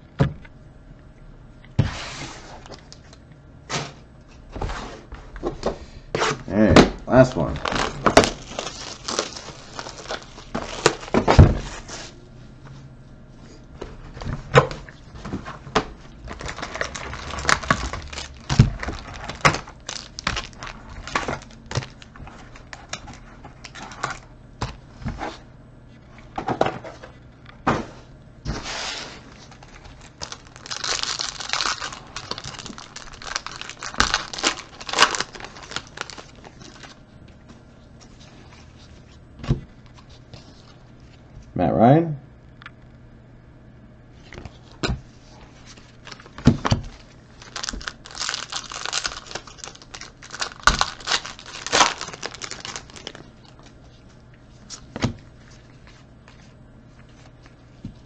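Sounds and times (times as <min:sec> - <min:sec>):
foil packs crinkling and tearing: 0:07.1 - 0:11.4, 0:15.5 - 0:24.3, 0:29.2 - 0:37.0, 0:45.7 - 0:54.0.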